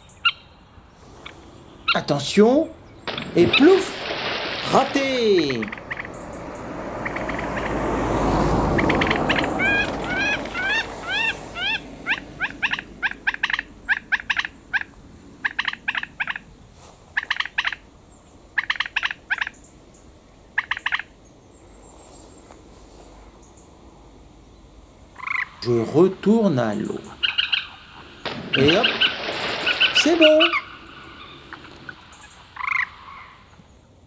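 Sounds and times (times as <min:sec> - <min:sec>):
rattling animal calls: 0:03.0 - 0:06.4, 0:07.0 - 0:07.8, 0:08.6 - 0:16.4, 0:25.1 - 0:33.7
animal rising call: 0:03.4 - 0:12.2.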